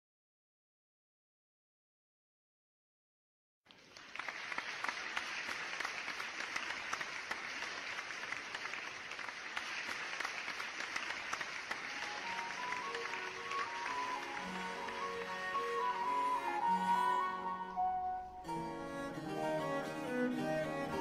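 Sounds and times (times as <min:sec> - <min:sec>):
group of people applauding: 0:03.7 - 0:17.5
music with held instrument notes: 0:12.1 - 0:21.0.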